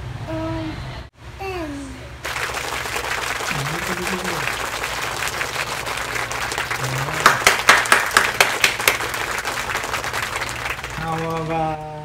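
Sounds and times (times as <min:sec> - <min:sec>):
hands clapping: 0:02.2 - 0:11.9.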